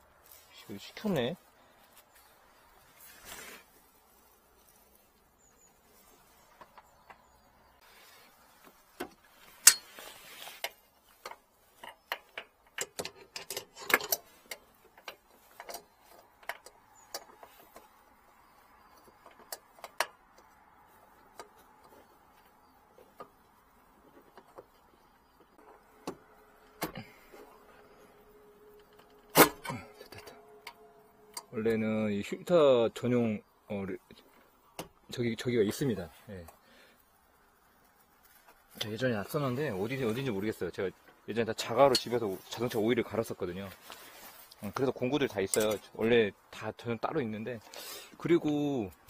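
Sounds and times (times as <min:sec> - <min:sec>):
objects being handled and shifted: 0:00.0 - 0:31.8, 0:34.0 - 0:46.1.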